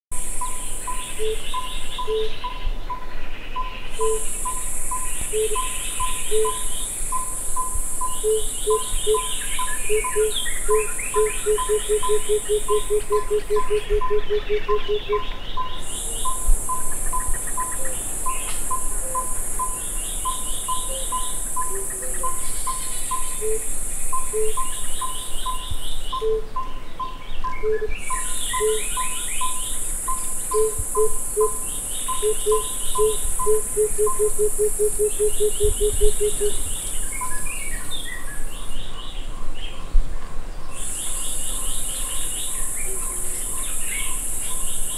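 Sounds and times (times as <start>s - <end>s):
high insect buzz: 3.9s - 26.4s, 27.9s - 38.0s, 40.8s - 44.9s
dove cooing: 4.0s - 4.3s, 5.3s - 6.7s, 8.2s - 15.2s, 30.5s - 36.6s
birds trilling: 28.0s - 37.3s.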